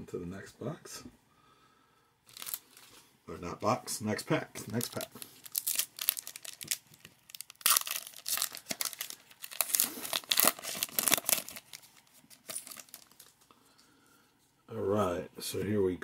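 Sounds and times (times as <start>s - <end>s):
foil wrapper crinkling and tearing: 2.3s - 3.0s, 4.7s - 13.4s.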